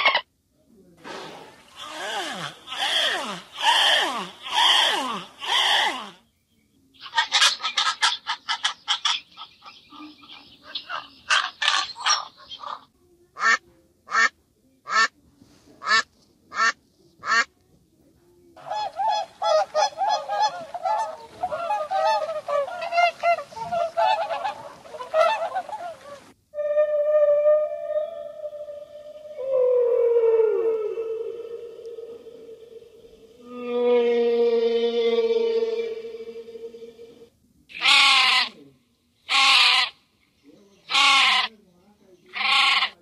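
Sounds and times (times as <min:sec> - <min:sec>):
ducks quacking: 0:18.6 - 0:26.3
swans honking: 0:18.6 - 0:26.4.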